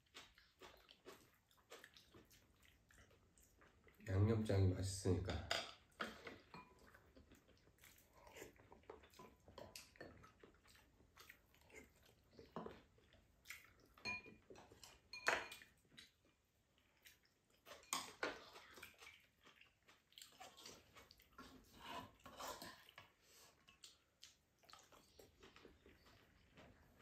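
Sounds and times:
soft chewing: 0.0s - 4.2s, 5.5s - 27.0s
utensils clinking on bowls: 5.1s - 6.9s, 14.0s - 15.7s.

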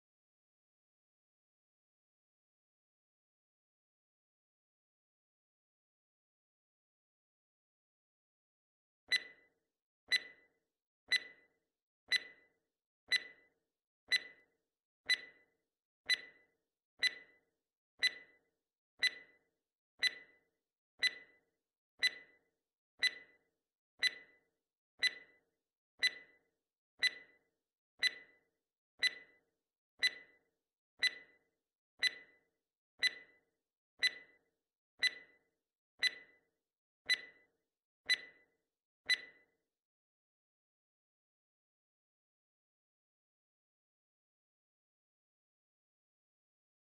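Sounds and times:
countdown timer ticking: 17.0s - 17.4s, 18.0s - 18.4s, 19.0s - 19.3s, 20.0s - 20.4s, 21.0s - 21.4s, 22.0s - 22.3s, 23.0s - 23.4s, 24.0s - 24.3s, 25.0s - 25.3s, 26.0s - 26.3s, 28.0s - 28.3s, 29.0s - 29.3s, 30.0s - 30.3s, 31.0s - 31.4s, 32.0s - 32.4s, 33.0s - 33.3s, 34.0s - 34.4s, 35.0s - 35.4s, 36.0s - 36.4s, 37.1s - 37.4s, 38.1s - 38.4s.

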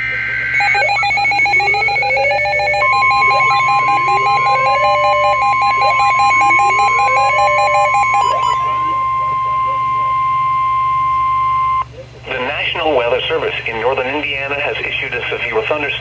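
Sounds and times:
pulsing alarm beeps with siren sweeps: 0.0s - 11.8s
steady warning tone: 0.0s - 11.9s.

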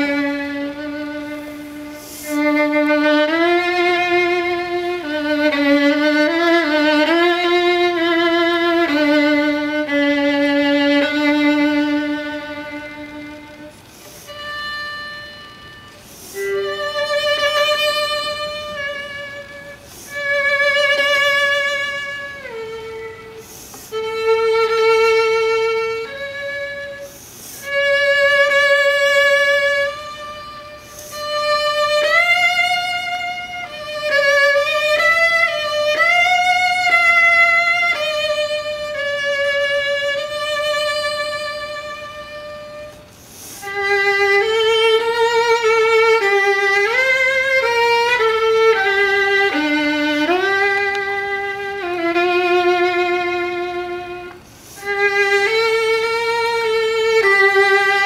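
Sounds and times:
solo violin melody: 0.0s - 58.0s.

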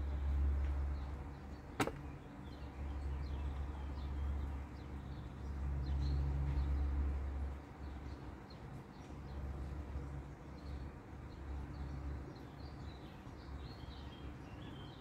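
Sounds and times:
distant propeller plane rumble: 0.0s - 13.0s
small birds chirping: 0.0s - 15.0s
sharp click: 1.8s - 2.1s.

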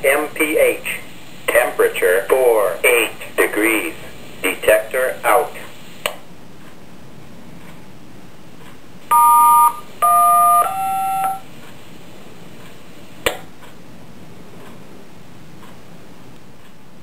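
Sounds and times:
radio hiss: 0.0s - 6.2s.

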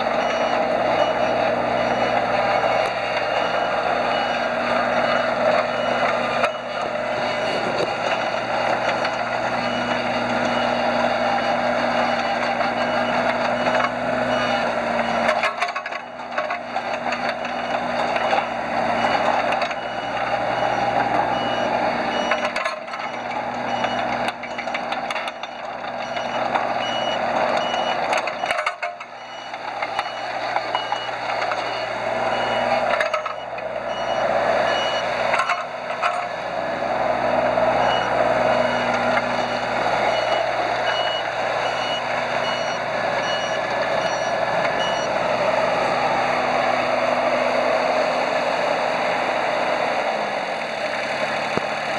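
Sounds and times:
mini excavator engine under load: 0.0s - 51.9s
travel alarm short beeps: 25.5s - 35.1s, 37.8s - 45.1s.

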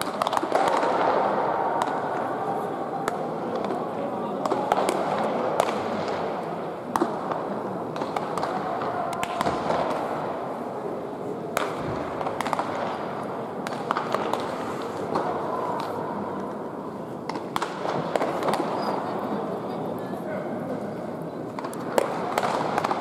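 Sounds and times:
background murmur: 0.0s - 23.0s
baseballs smacking into gloves: 6.9s - 10.0s, 11.6s - 13.0s, 21.6s - 23.0s.

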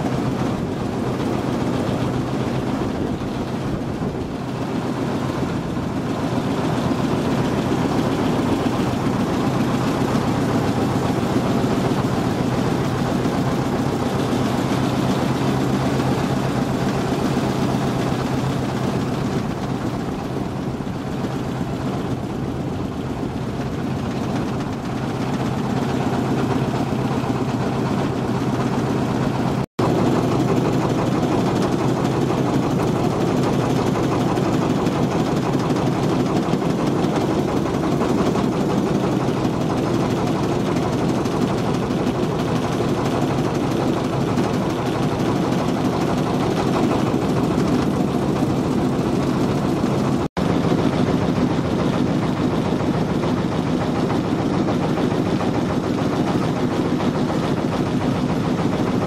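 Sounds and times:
boat engine droning: 0.0s - 59.0s.

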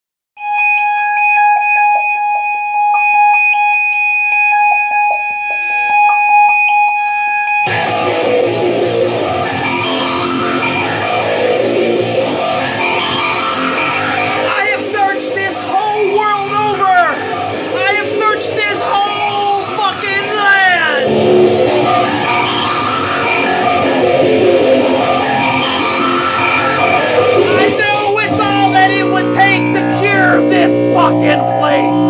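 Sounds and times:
electric guitar ringing tone: 0.4s - 32.0s
rock band playing: 7.6s - 32.0s.

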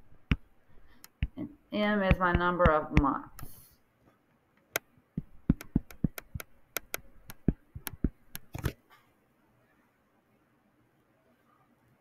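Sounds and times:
stylus tapping on a screen: 0.1s - 3.6s, 4.8s - 8.7s.

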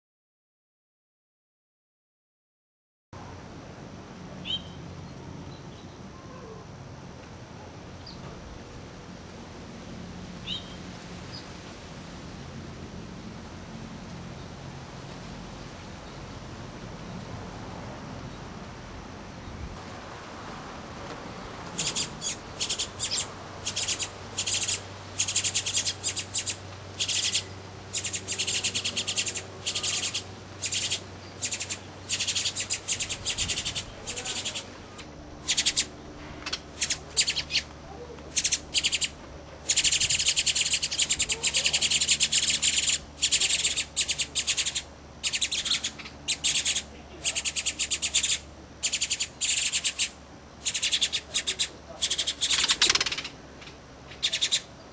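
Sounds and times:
nestlings begging chirps: 4.4s - 6.0s, 10.4s - 11.5s, 21.7s - 53.4s, 54.1s - 54.9s.

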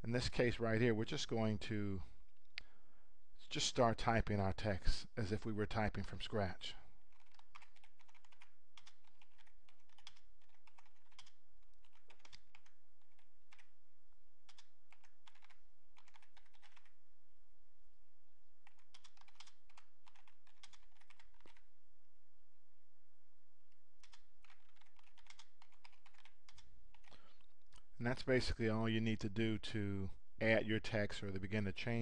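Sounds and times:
computer keyboard typing: 7.0s - 13.7s, 14.4s - 17.0s, 18.6s - 21.7s, 24.0s - 27.9s.

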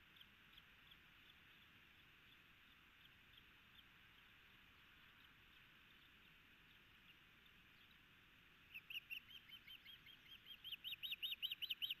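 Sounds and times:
faint steady hiss: 0.0s - 12.0s
bird whistled chirps: 8.7s - 12.0s.

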